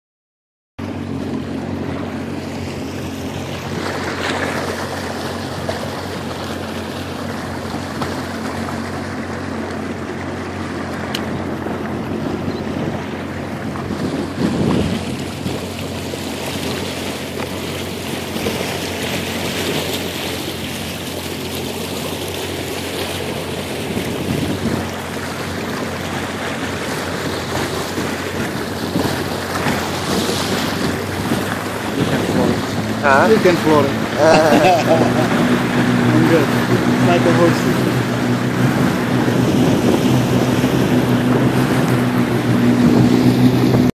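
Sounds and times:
jet ski engine running: 0.8 - 43.9
water noise: 0.8 - 43.9
wind noise: 11.2 - 15.8, 23.8 - 25.0, 26.8 - 43.9.

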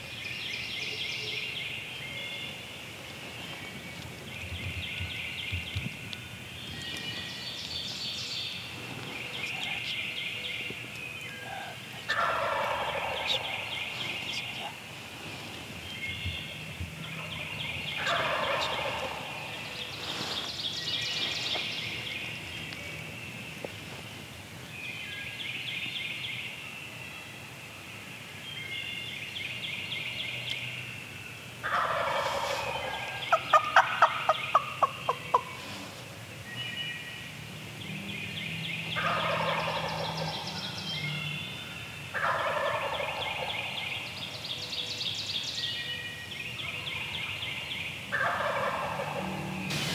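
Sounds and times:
songbirds singing: 0.0 - 49.9
turkey gobbling: 11.5 - 13.6, 18.0 - 19.4, 31.6 - 35.6, 39.0 - 40.4, 42.1 - 43.6, 48.1 - 49.4.

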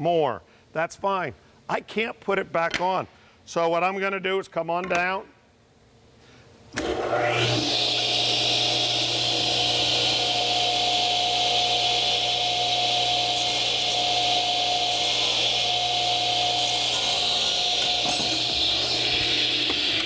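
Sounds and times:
radial arm saw running: 6.8 - 20.0.

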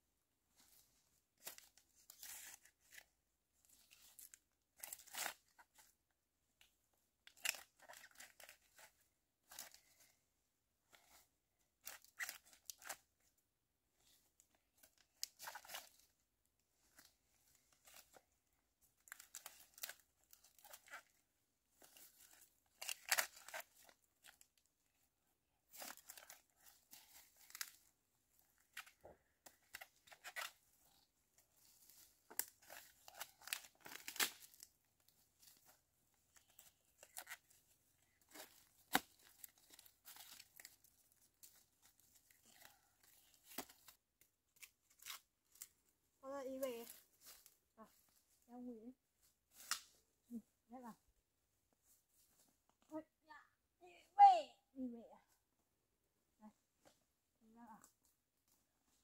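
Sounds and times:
crisp tearing and crinkling: 3.7 - 5.9, 7.3 - 8.9, 11.8 - 13.0, 19.0 - 21.1, 21.8 - 24.5, 25.7 - 27.9, 28.6 - 45.8.

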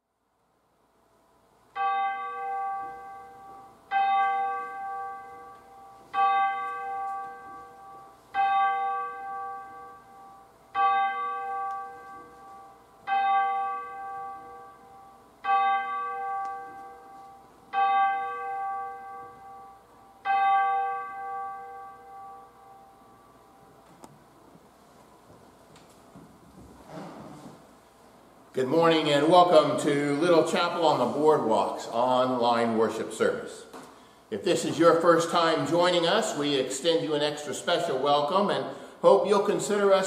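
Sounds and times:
bell tolling: 1.8 - 23.7.

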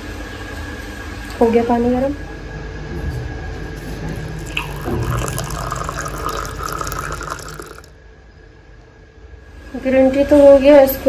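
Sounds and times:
water pouring into a glass: 4.4 - 8.0.

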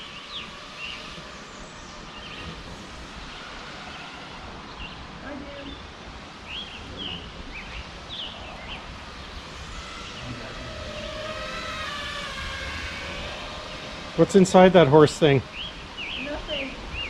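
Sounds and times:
quadcopter motors whining: 0.0 - 17.0
bird chirps: 15.0 - 17.0.

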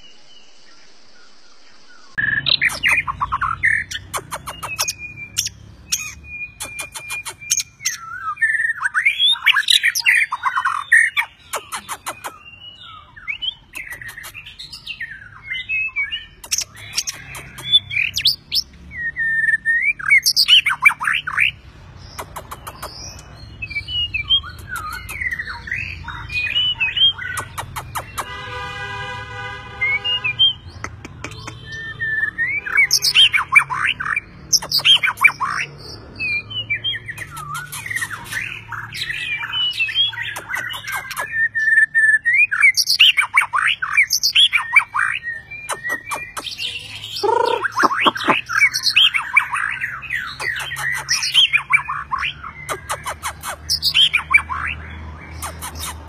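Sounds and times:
bird singing whistled song: 0.0 - 21.6, 22.2 - 28.3, 29.8 - 56.0.

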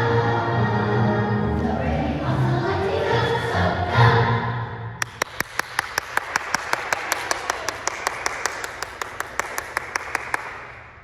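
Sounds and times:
children's choir singing: 0.0 - 4.9
close steady clapping: 5.0 - 11.0
crowd clapping: 5.0 - 11.0.

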